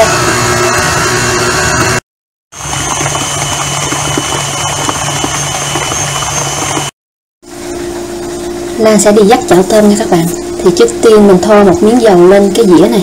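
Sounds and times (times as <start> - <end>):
stand mixer running: 0.0 - 2.0, 2.6 - 7.0.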